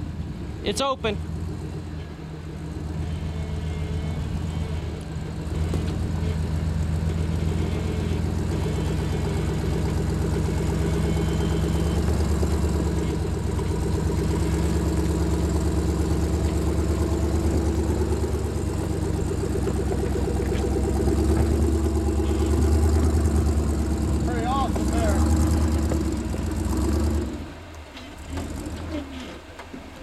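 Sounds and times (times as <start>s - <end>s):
engine throbbing at low revs: 0.0s - 29.2s.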